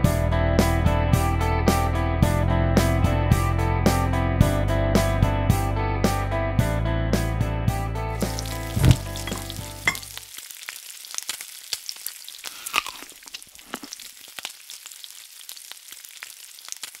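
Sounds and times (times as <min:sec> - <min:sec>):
music: 0:00.0 - 0:10.1
hot oil sizzling and popping: 0:08.1 - 0:17.0.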